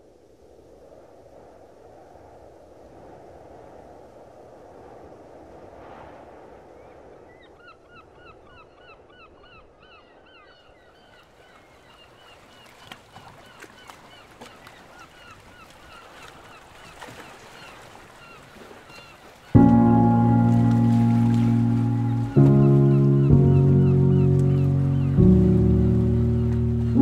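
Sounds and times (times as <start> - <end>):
birds honking calls: 19.6 - 27.0.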